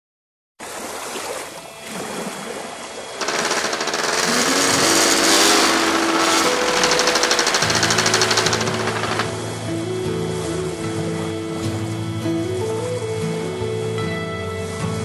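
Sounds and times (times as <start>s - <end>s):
paramotor engine rattling: 3.2s - 9.6s.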